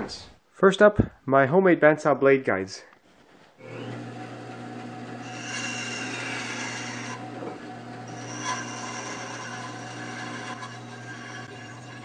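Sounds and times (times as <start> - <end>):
bandsaw motor humming: 3.6 - 12.0
saw blade cutting wood: 4.8 - 12.0.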